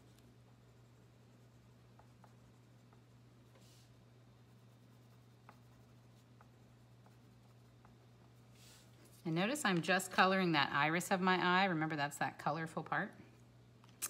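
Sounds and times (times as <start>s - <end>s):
low steady hum: 0.0s - 14.0s
pastel scratching on paper: 0.7s - 8.9s.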